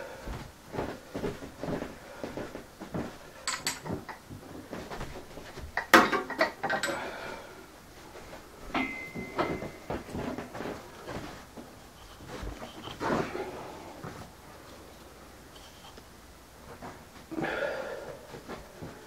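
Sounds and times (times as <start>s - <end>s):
footsteps: 0.2s - 5.8s, 7.9s - 17.4s, 18.1s - 19.0s
light metal clinks: 8.7s - 10.0s.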